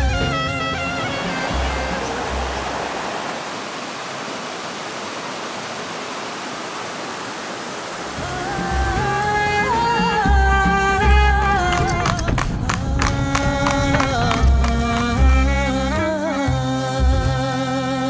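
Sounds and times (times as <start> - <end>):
music: 0.0 - 2.8, 8.2 - 18.0
water rushing over a weir: 0.0 - 10.3.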